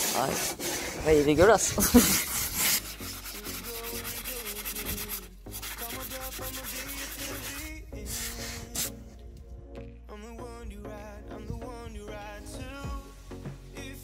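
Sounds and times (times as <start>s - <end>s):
sanding block rubbing fibreglass: 0.0s - 9.0s.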